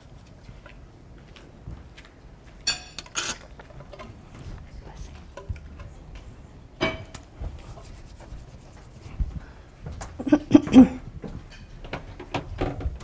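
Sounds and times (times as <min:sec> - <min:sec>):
metal trays clinking: 0:02.6 - 0:03.5.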